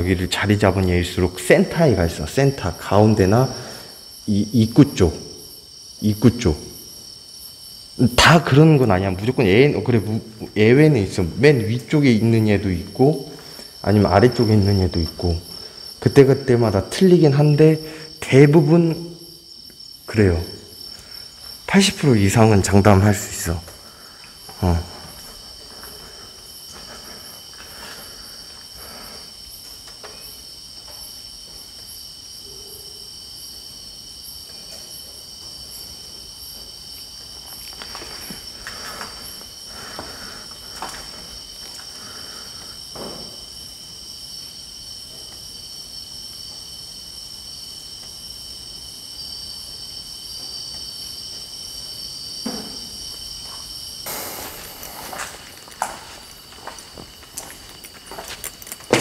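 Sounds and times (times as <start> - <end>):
crickets and insects trilling: 0.0 - 59.0
handling rustles and knocks: 54.8 - 59.0.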